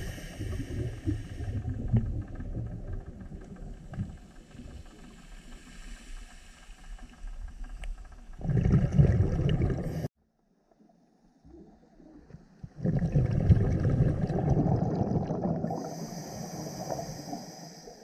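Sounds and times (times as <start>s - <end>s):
underwater bubbling: 0.0s - 10.1s, 11.4s - 18.0s
faint clicks: 2.3s - 8.4s.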